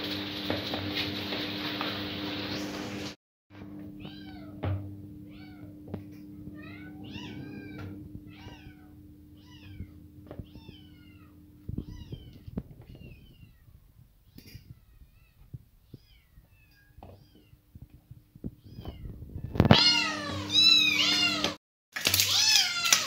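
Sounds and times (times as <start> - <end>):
cat meowing: 4.0 - 4.6, 6.5 - 17.6, 18.5 - 21.6, 22.2 - 23.0.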